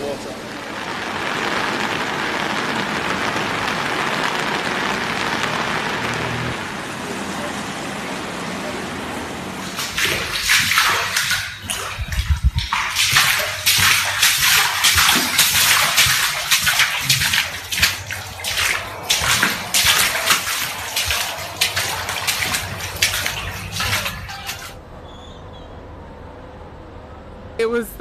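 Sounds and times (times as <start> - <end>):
water sloshing and splashing: 9.5 - 24.8.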